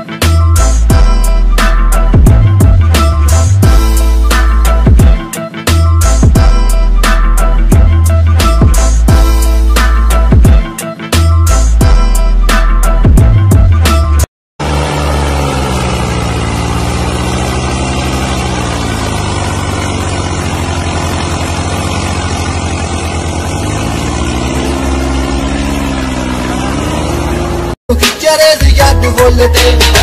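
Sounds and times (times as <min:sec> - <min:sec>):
tractor diesel engine running: 0:14.6 - 0:27.8.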